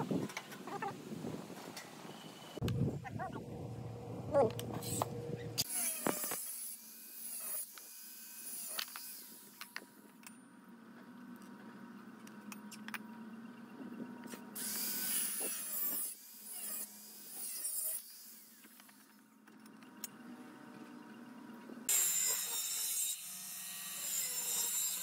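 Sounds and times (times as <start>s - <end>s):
angle grinder cutting steel: 21.9s - 25.0s.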